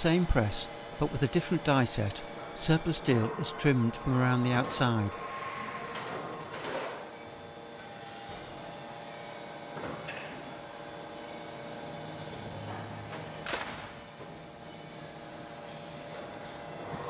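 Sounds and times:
machine hum: 0:00.0 - 0:13.4.

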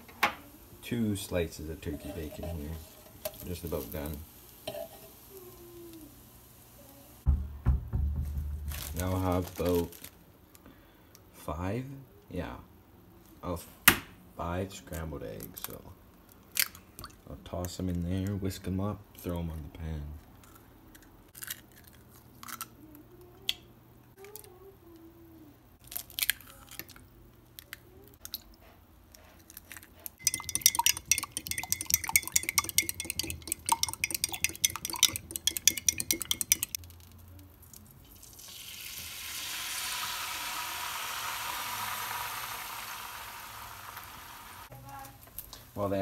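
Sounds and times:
eggs sizzling in frying pan: 0:00.0 - 0:07.3, 0:30.2 - 0:46.0
eggs cracking: 0:29.5 - 0:38.8
fork whisking against glass: 0:30.2 - 0:36.8.

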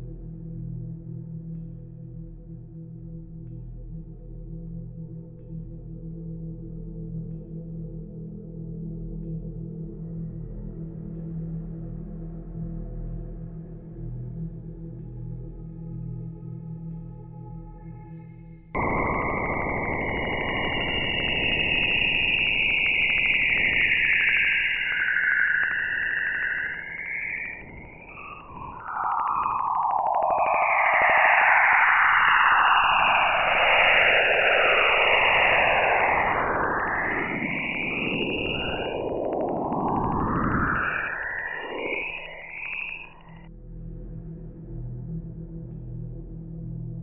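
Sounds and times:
dense rush of noise: 0:18.8 - 0:43.2
gliding tones sweeping down and up: 0:18.8 - 0:43.4.

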